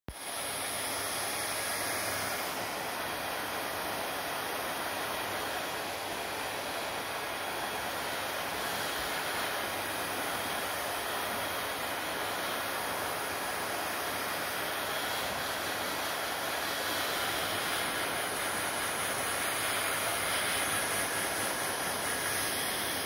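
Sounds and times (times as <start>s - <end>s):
hair dryer running: 0.1s - 23.0s.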